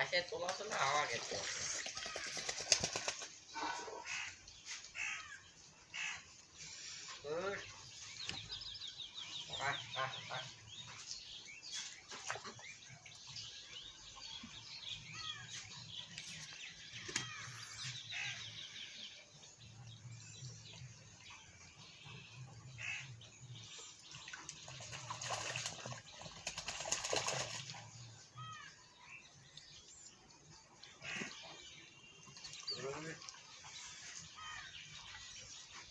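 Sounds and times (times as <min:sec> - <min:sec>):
small birds chirping: 0:00.0 - 0:35.9
ducks quacking: 0:09.4 - 0:11.0, 0:31.0 - 0:31.6.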